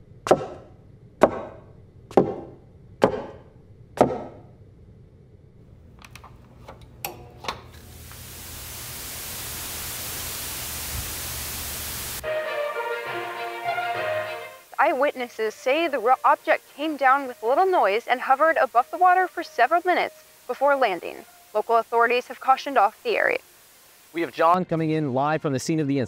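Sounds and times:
television static hiss: 0:05.7 - 0:24.9.

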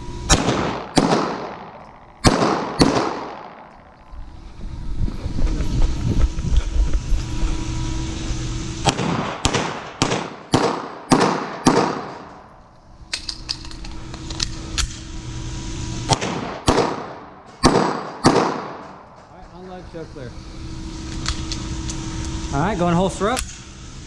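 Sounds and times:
pistol shots echoing indoors: 0:00.3 - 0:03.8, 0:08.9 - 0:12.4, 0:16.1 - 0:19.0.

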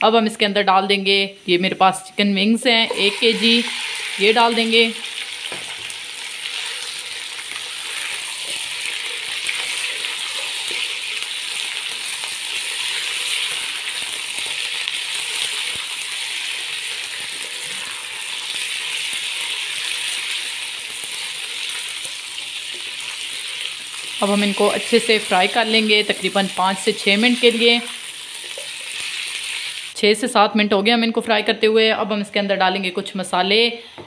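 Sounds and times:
chicken sizzling in hot oil: 0:02.9 - 0:30.0.

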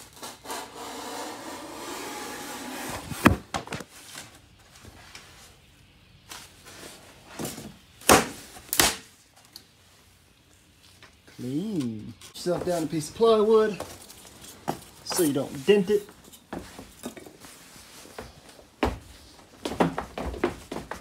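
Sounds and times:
utility knife scoring foam board: 0:00.1 - 0:03.8
foam board snapping: 0:08.0 - 0:09.1.

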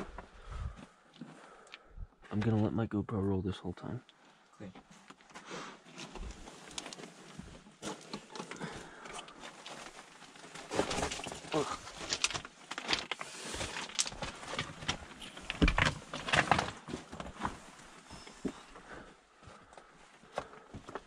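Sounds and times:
stones clattering: 0:10.6 - 0:16.8.

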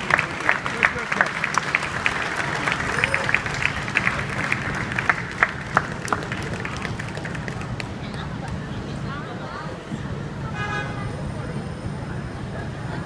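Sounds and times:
crowd applause: 0:00.0 - 0:08.6
crowd voices: 0:00.0 - 0:13.0.

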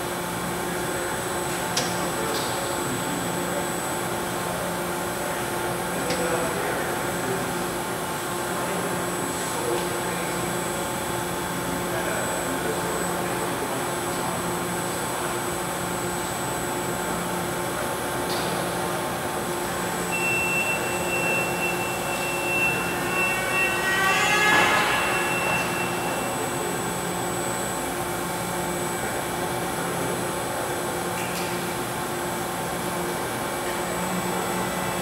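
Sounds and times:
milling machine hum with motor whine: 0:00.0 - 0:35.0
high steady tone: 0:20.1 - 0:27.0
rising whine: 0:20.4 - 0:27.5.

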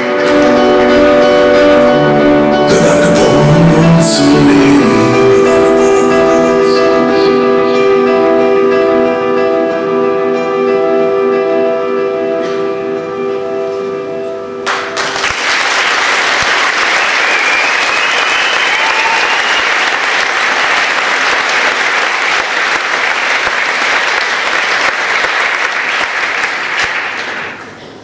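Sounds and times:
audience applauding: 0:14.6 - 0:27.8
whoops or whistles: 0:17.3 - 0:19.9.

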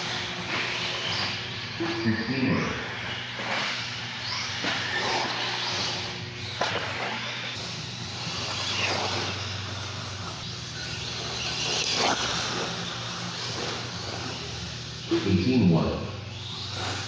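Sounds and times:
radio-controlled trucks whining past: 0:00.0 - 0:17.0
steady low hum: 0:00.0 - 0:17.0.

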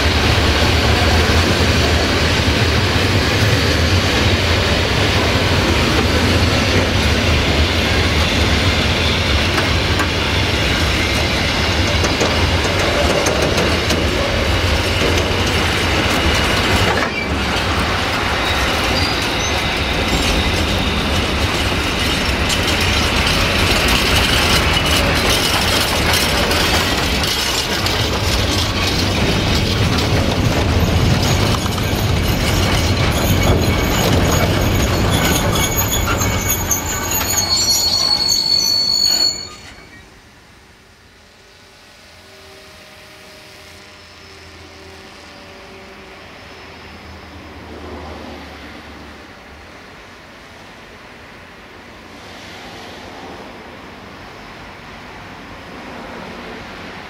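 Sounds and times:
train wheels rumbling and clattering: 0:00.0 - 0:40.2
high metallic wheel squeal: 0:03.2 - 0:40.1.

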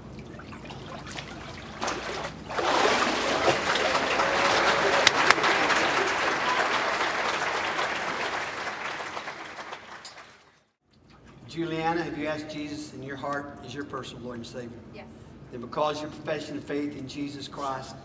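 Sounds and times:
congregation applauding: 0:02.7 - 0:10.6.

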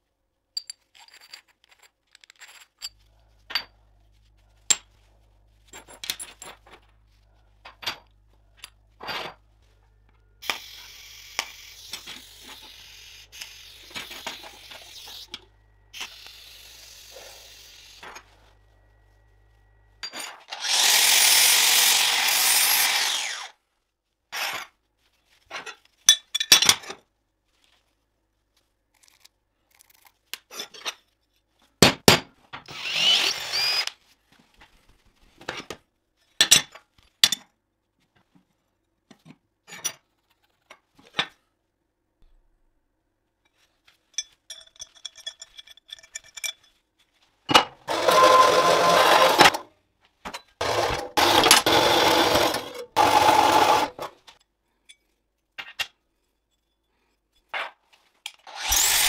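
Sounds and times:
band saw cutting metal: 0:20.5 - 0:23.6, 0:47.8 - 0:49.6, 0:50.6 - 0:54.1, 0:58.5 - 0:59.0.

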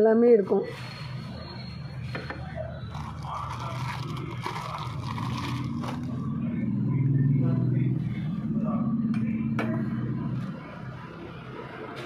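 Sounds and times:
plastic wrapping crinkling: 0:02.9 - 0:06.3.

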